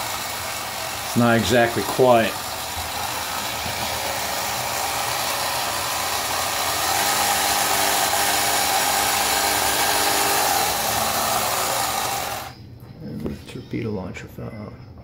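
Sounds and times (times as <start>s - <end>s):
model ship motor whirring: 0.0s - 12.6s.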